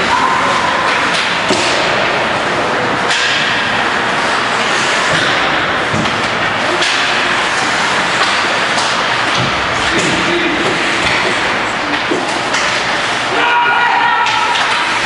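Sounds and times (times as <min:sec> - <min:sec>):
loud rush of rink noise: 0:00.0 - 0:15.0
hockey stick and puck clacks: 0:00.8 - 0:02.1, 0:03.0 - 0:03.9, 0:05.0 - 0:07.4, 0:08.1 - 0:13.0, 0:14.2 - 0:15.0.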